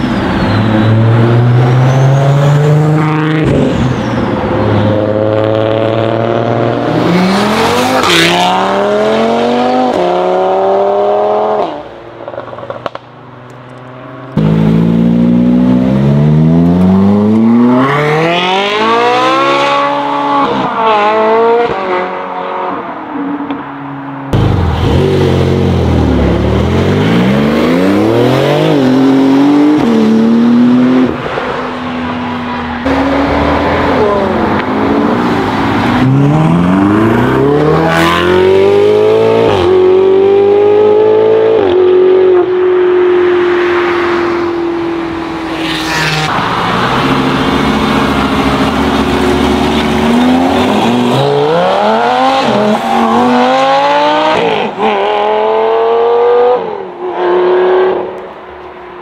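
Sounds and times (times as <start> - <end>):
sports cars accelerating hard: 0.0 - 13.0, 13.6 - 58.3
car passing by: 45.2 - 54.8.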